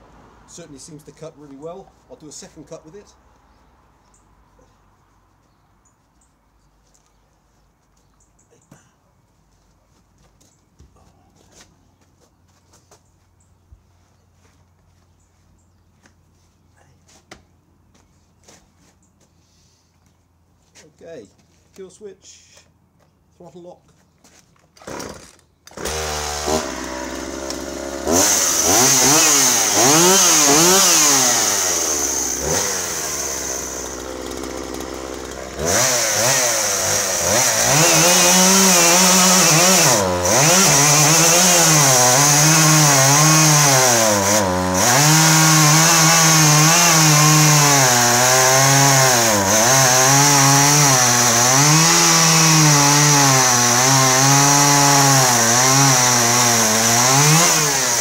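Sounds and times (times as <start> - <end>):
chainsaw cutting log: 24.7 - 58.0
chainsaw pull-started: 24.7 - 58.0
chainsaw revving: 24.8 - 58.0.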